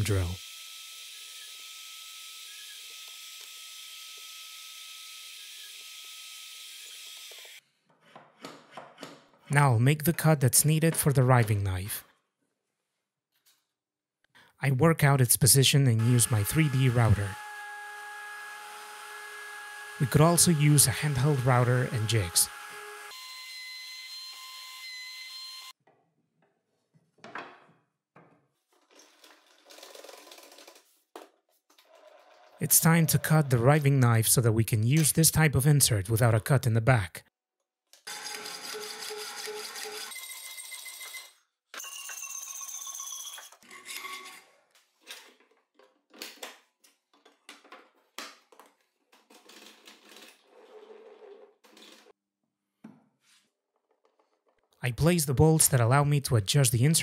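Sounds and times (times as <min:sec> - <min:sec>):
router whining: 0:16.0 - 0:25.7.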